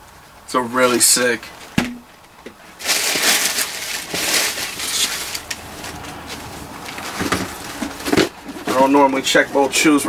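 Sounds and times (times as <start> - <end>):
shoe box rustling and scraping: 2.8 - 10.0.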